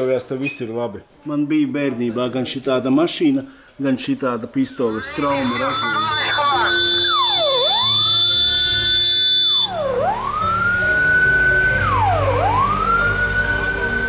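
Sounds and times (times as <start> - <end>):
high-pitched whine: 4.6 - 14.0
police siren wailing: 4.8 - 14.0.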